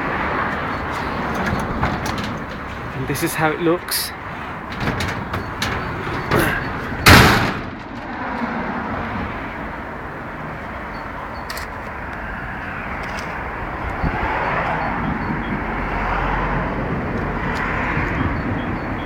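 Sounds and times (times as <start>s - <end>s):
outdoor background noise: 0.0s - 19.0s
loud thump: 4.7s - 8.1s.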